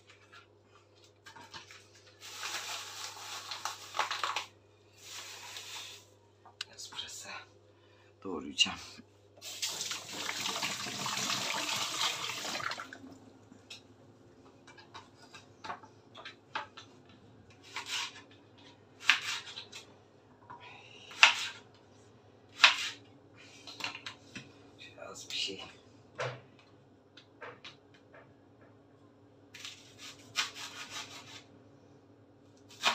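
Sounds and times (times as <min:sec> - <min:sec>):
tap water running: 0:09.4 - 0:13.3
knife cutting on wooden board: 0:29.6 - 0:31.4.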